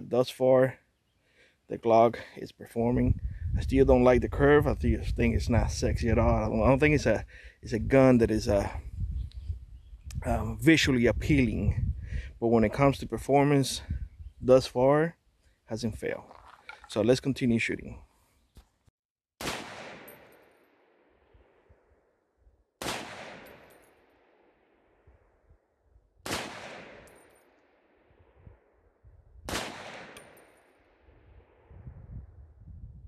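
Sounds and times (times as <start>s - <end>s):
rifle shots with echo: 19.4s - 21.7s, 22.8s - 24.9s, 26.2s - 28.0s, 29.5s - 31.7s.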